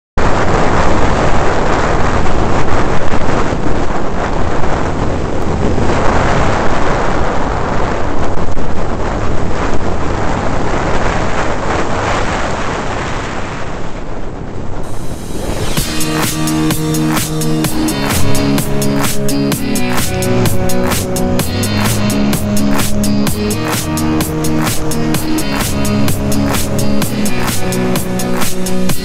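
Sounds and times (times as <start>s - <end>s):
wind buffeting microphone: 0.2s - 18.8s.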